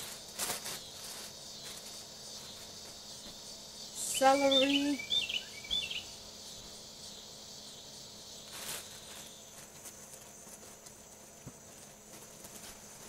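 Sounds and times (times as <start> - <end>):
short rustle: 0.0 - 3.4, 8.4 - 13.0
insects chorus: 0.0 - 13.0
bird song note: 4.0 - 6.2.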